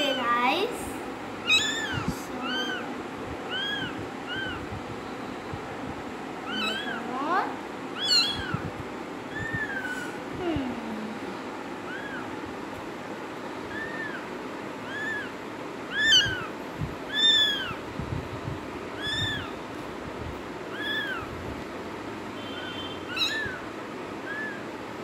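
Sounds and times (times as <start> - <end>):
kitten mewing: 1.4 - 2.9, 3.5 - 4.7, 6.4 - 7.1, 8.0 - 8.7, 9.3 - 10.4, 11.9 - 12.4, 13.7 - 17.8, 19.0 - 19.6, 20.7 - 21.3, 23.0 - 24.7.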